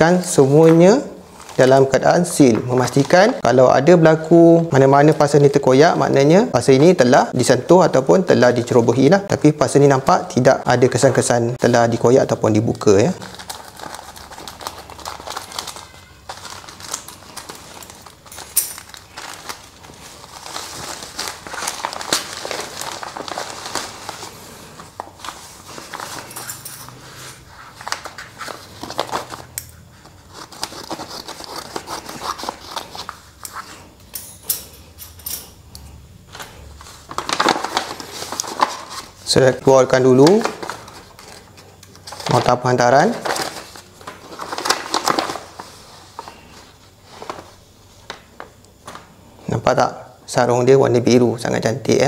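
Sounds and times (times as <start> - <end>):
plastic bag and bubble wrap crinkling: 0.0 - 7.0, 10.4 - 34.0, 36.3 - 49.1
paper rustling: 12.8 - 34.0, 36.3 - 49.1.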